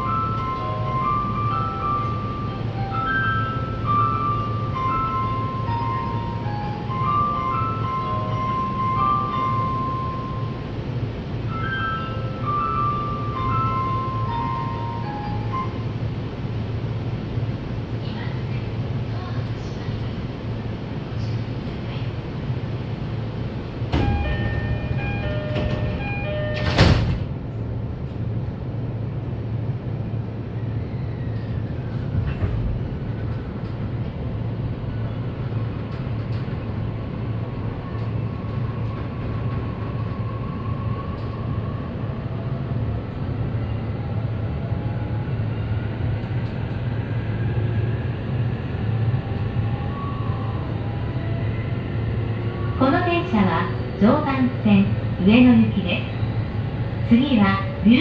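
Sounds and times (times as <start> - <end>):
train door chime: 0.0 - 16.2, 23.9 - 27.4
train doors slamming shut: 23.8 - 27.5, 32.1 - 33.8.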